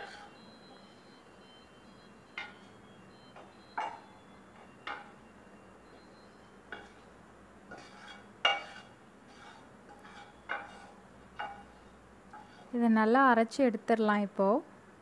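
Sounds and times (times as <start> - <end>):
spatula scraping a pan: 0.0 - 0.8, 6.3 - 7.1, 7.7 - 12.8.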